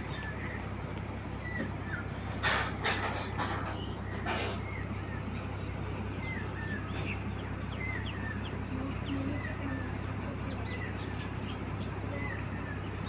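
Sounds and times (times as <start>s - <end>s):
birds chirping: 0.0s - 13.0s
boat engine humming: 0.0s - 13.0s.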